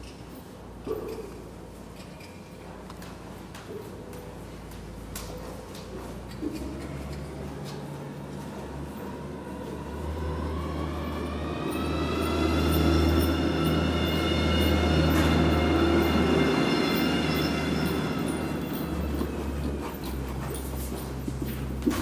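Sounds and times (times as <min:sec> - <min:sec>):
machine whine over low rumble: 0:08.5 - 0:19.4.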